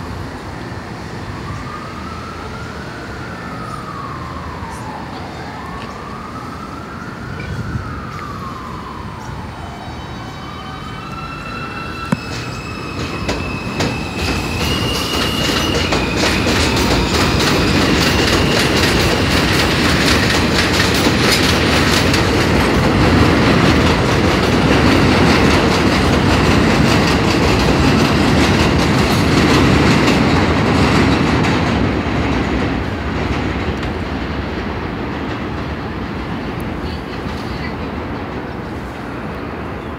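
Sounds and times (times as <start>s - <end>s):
subway train propulsion whine: 0.0s - 39.9s
siren wailing: 1.2s - 27.4s
wheels clicking over rail joints: 12.1s - 34.0s.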